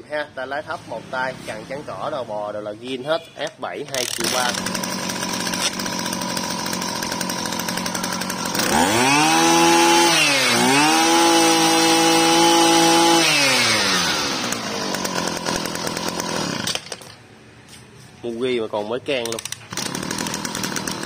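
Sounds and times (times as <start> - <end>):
brush cutter engine revving: 3.8 - 17.1, 19.2 - 21.0.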